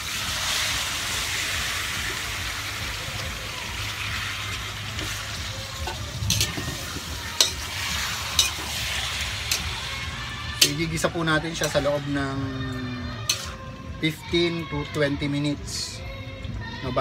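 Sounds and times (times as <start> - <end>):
meat sizzling in a wok: 0.0 - 13.6
metal spoon stirring: 5.8 - 6.7, 7.3 - 12.1, 13.2 - 13.7.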